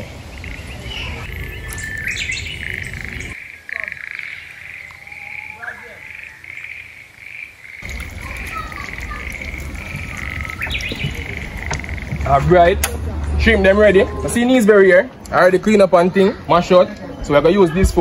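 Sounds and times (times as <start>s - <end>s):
pulsing high chirping chorus: 0.0s - 12.4s.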